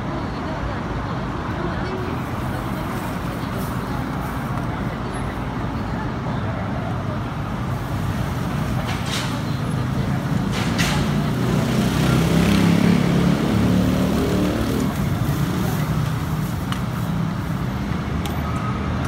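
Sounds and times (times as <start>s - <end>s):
road traffic rumble: 0.0s - 19.0s
passing vehicle engine: 7.8s - 19.0s.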